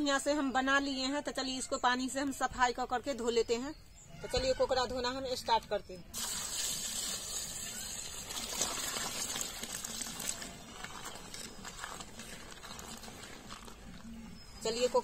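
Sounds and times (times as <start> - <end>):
water pouring into metal pot: 6.2 - 13.7.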